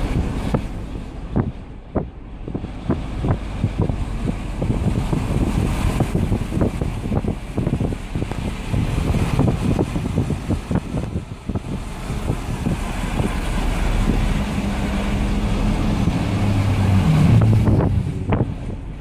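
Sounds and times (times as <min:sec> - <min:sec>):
car rumbling on road: 0:00.0 - 0:19.0
wind buffeting microphone: 0:00.0 - 0:19.0.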